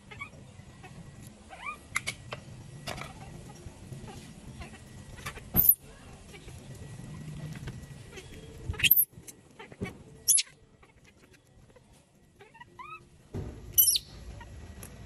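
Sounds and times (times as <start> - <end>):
baby monkey shrieking: 8.8 - 9.1, 10.3 - 10.5, 13.8 - 14.1.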